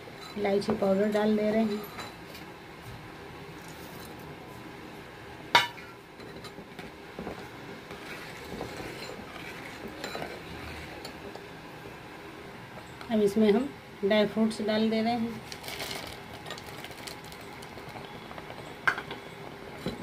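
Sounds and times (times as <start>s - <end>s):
metal ladle scraping pot: 7.9s - 11.1s.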